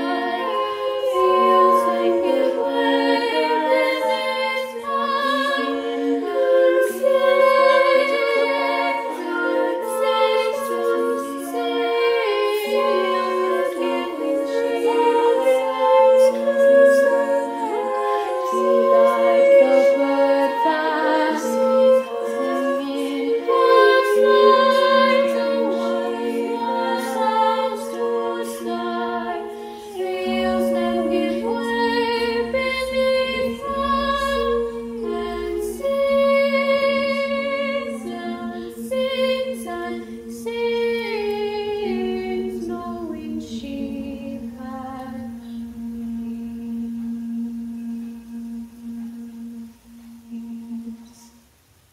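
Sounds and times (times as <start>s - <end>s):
women's choir singing: 0.0s - 51.4s
held low note: 12.2s - 51.2s.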